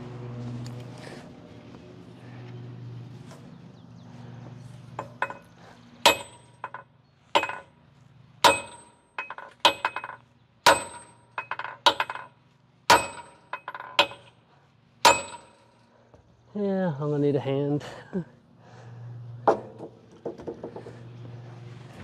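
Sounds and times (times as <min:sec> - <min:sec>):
hammer striking steel bolt: 0:06.1 - 0:06.8, 0:08.4 - 0:12.3, 0:12.9 - 0:14.3, 0:15.1 - 0:15.7.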